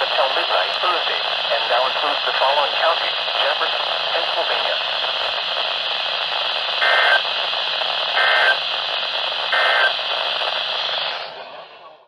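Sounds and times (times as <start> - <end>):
radio static hiss: 0.0 - 12.0
buzzy data bursts: 6.8 - 7.2, 8.1 - 8.6, 9.5 - 10.0.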